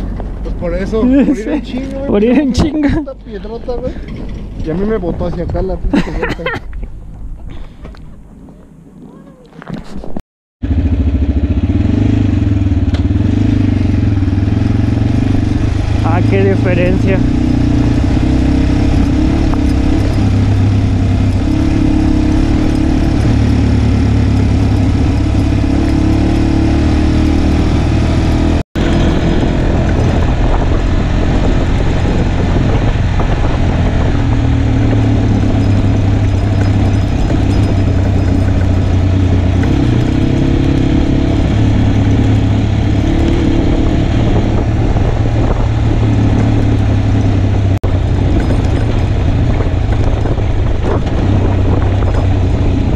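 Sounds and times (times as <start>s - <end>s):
motorcycle engine running: 10.6s - 52.9s.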